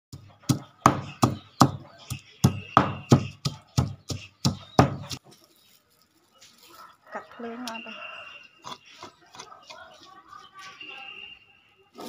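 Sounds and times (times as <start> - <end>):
pestle pounding in wooden mortar: 0.1 - 5.2.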